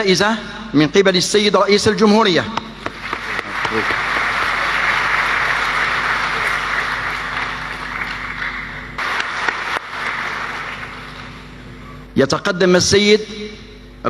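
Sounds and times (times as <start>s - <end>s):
audience applauding: 2.8s - 11.5s.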